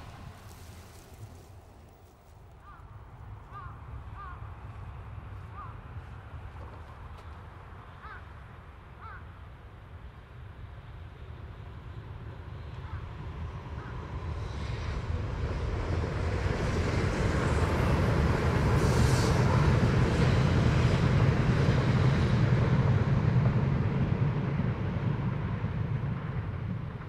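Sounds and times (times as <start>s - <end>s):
brief hiss of passing train: 0.0s - 2.4s, 14.4s - 22.6s
train wheels rumbling on rail: 0.0s - 27.0s.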